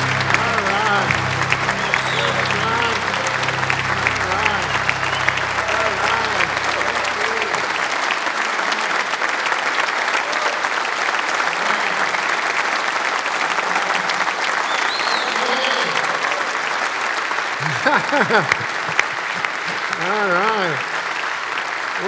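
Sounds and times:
voices calling out: 0:00.0 - 0:08.0
audience applauding: 0:00.0 - 0:22.0.

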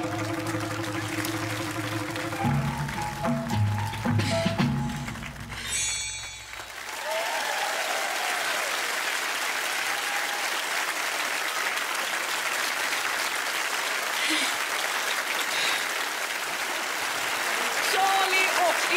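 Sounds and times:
music: 0:00.0 - 0:06.8
audience applauding: 0:00.0 - 0:18.9.

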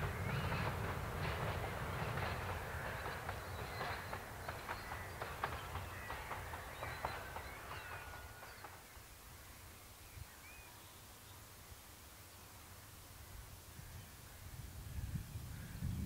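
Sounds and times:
birds chirping and calling: 0:02.2 - 0:08.7.

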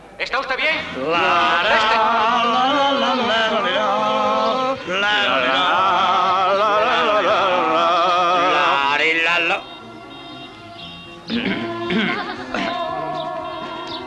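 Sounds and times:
person singing with vibrato: 0:00.8 - 0:14.0.

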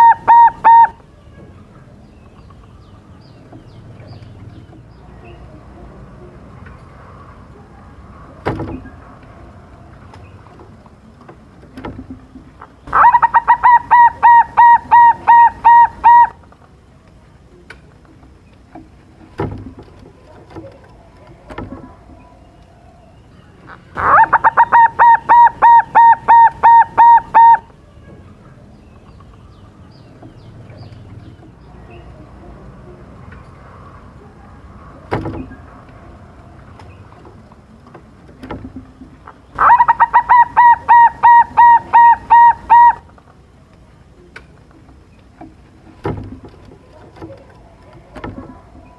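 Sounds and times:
dove cooing song: 0:00.0 - 0:01.1, 0:12.8 - 0:16.5, 0:23.6 - 0:27.8, 0:38.4 - 0:43.2.

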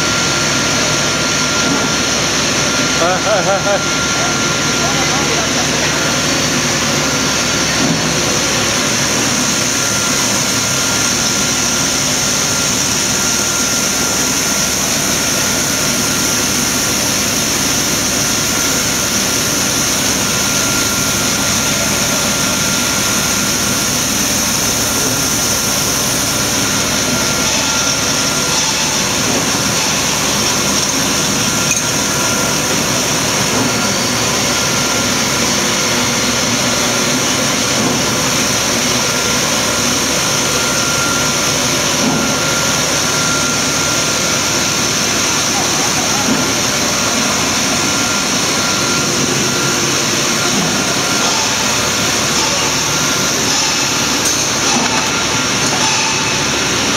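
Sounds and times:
loud machine drone: 0:00.0 - 0:56.9.

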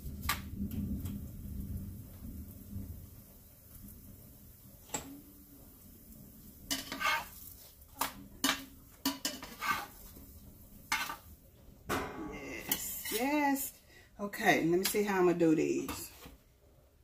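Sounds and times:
utensil scraping frying pan: 0:06.7 - 0:11.4, 0:12.0 - 0:13.7.

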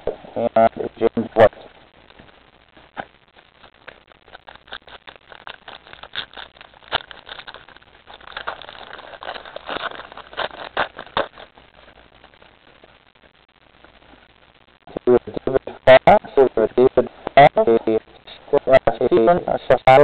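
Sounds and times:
trading card packaging rustling: 0:02.1 - 0:12.4.

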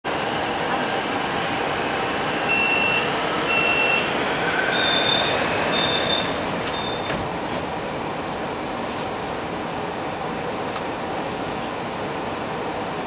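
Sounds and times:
subway car hum: 0:00.0 - 0:13.0
door warning beeps: 0:02.5 - 0:04.1, 0:04.7 - 0:07.3
doors sliding shut: 0:02.5 - 0:07.8.

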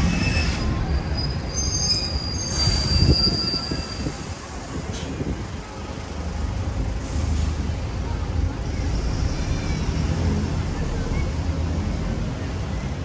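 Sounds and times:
high-pitched metallic squeal: 0:00.0 - 0:04.3
city traffic rumble: 0:00.0 - 0:13.0.

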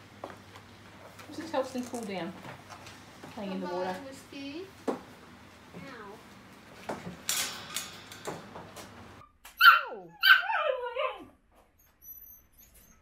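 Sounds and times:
puppies yipping and whimpering: 0:09.6 - 0:10.9.

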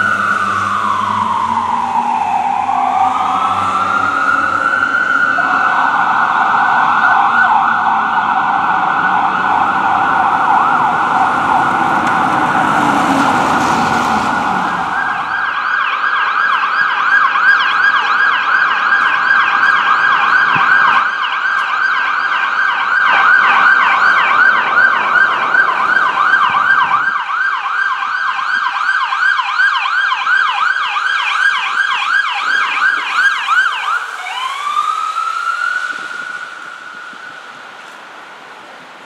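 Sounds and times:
emergency siren yelping and wailing: 0:00.0 - 0:38.6
low road traffic rumble: 0:00.0 - 0:39.0.

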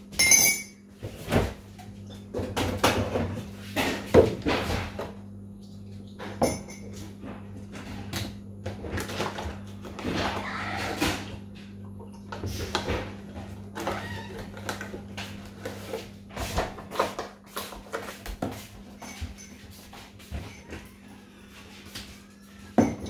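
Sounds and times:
refrigerator door opening and shutting: 0:08.8 - 0:11.6, 0:12.5 - 0:15.4.

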